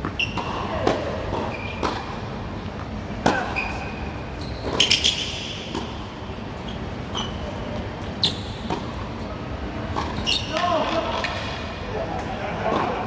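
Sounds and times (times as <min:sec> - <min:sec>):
racquet hitting tennis ball: 0:00.0 - 0:02.2, 0:02.8 - 0:03.8, 0:04.6 - 0:06.0
tennis ball bouncing: 0:00.0 - 0:03.8, 0:04.6 - 0:06.1, 0:08.6 - 0:09.2, 0:09.9 - 0:11.4
shoes squeaking on court: 0:00.0 - 0:11.5.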